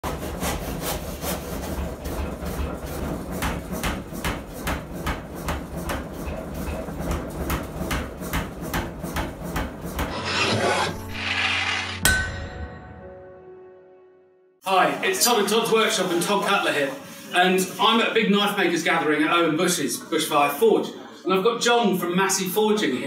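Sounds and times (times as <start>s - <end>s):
power hammer striking steel: 3.4s - 12.8s
motor humming: 10.0s - 11.9s
ringing metallic clang: 12.0s - 13.0s.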